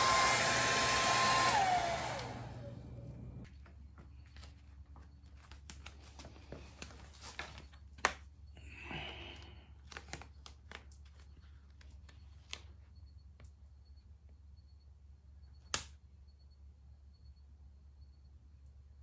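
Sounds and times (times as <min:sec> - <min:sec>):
vinyl rustling: 0:03.1 - 0:08.4
small clicks and crinkles: 0:03.4 - 0:13.6.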